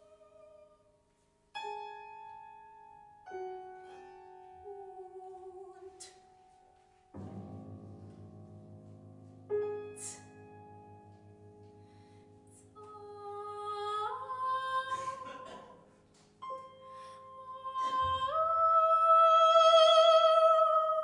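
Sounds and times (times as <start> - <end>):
soprano singing: 3.4 - 6.8, 12.6 - 21.0.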